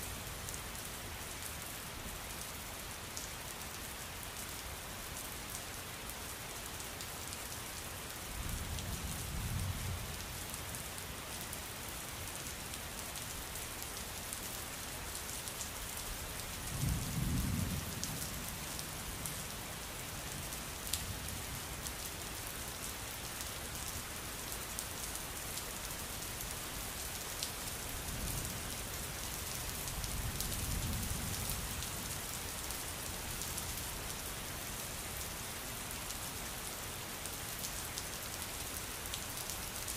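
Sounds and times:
steady rain: 0:00.0 - 0:39.9
low rolls of thunder: 0:16.8 - 0:18.4.

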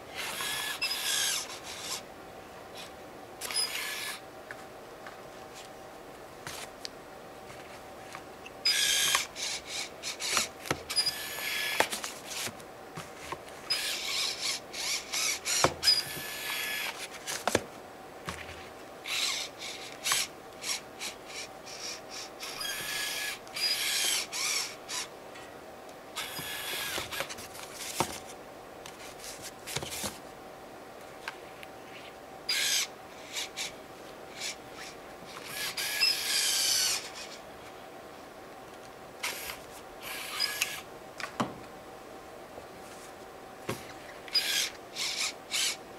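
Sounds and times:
faint steady hum: 0:00.0 - 0:45.9
small electric motor whirring: 0:00.2 - 0:02.0, 0:02.8 - 0:04.2, 0:08.6 - 0:12.5, 0:13.7 - 0:17.1, 0:19.1 - 0:25.1, 0:26.2 - 0:27.4, 0:32.5 - 0:33.7, 0:34.3 - 0:37.4, 0:39.2 - 0:40.9, 0:44.3 - 0:45.8.

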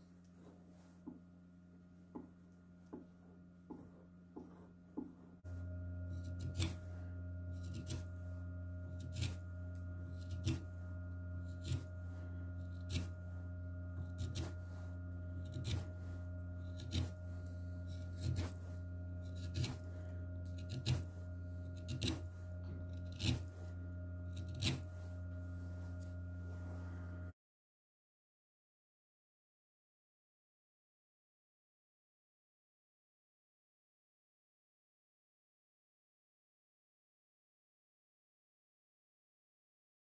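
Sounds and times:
wood lathe humming: 0:02.1 - 0:27.3
short scrape on turning wood: 0:06.2 - 0:07.0, 0:07.6 - 0:08.1, 0:09.0 - 0:09.5, 0:11.5 - 0:13.2, 0:14.0 - 0:27.2.

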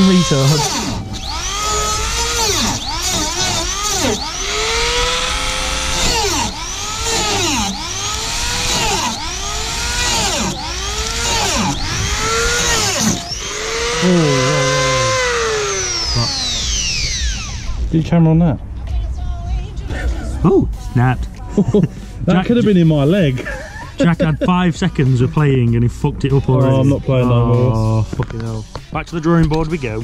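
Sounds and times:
rotary tool cutting plastic: 0:00.0 - 0:17.8.

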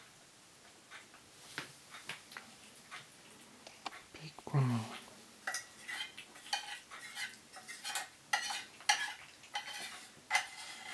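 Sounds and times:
cats chewing: 0:01.9 - 0:10.9
teeth clinking on ceramic dishes: 0:05.4 - 0:10.9.

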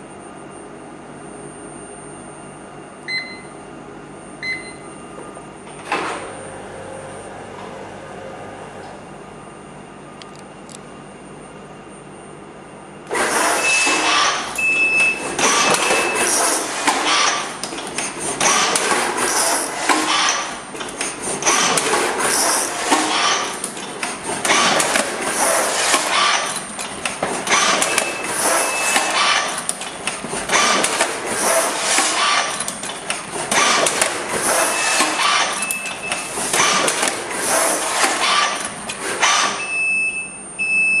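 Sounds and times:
machine mechanical clatter: 0:13.1 - 0:39.7.

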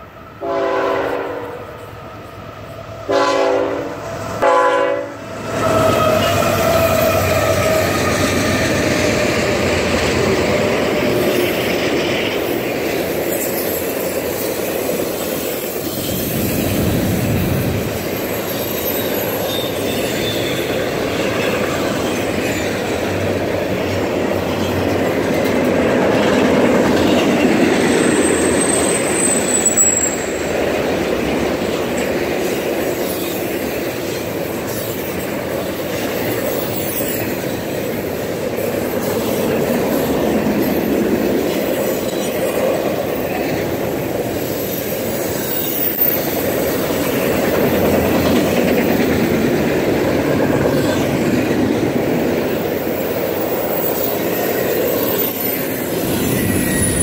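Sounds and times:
train wheels rumbling on rails: 0:00.0 - 0:57.0
train horn blasts: 0:00.4 - 0:01.8, 0:03.0 - 0:06.6
high wheel squeal: 0:05.4 - 0:08.6, 0:15.2 - 0:21.6, 0:27.7 - 0:30.5, 0:43.8 - 0:46.9, 0:52.8 - 0:57.0.

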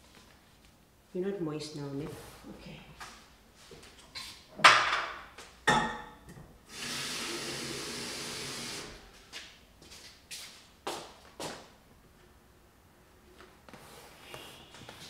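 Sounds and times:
kitchen tap running: 0:06.7 - 0:08.9.

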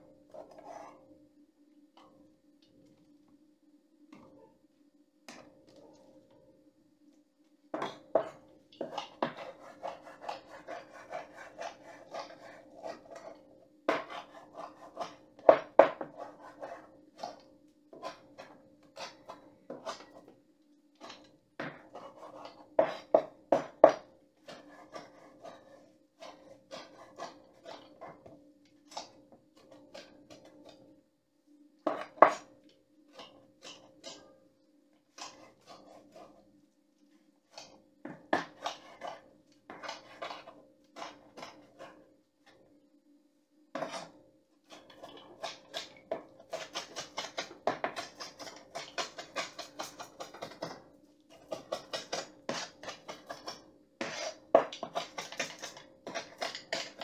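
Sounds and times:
faint steady hum: 0:00.0 - 0:57.0
knife chopping on wooden board: 0:07.8 - 0:13.1, 0:13.9 - 0:17.3, 0:21.6 - 0:27.8, 0:38.0 - 0:41.6, 0:45.0 - 0:57.0.

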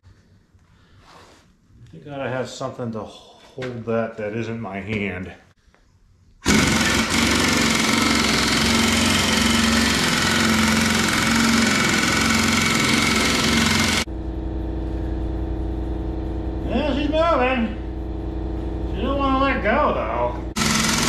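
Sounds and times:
impact wrench hammering: 0:06.4 - 0:14.1, 0:20.6 - 0:21.0
machine hum: 0:06.4 - 0:21.0.

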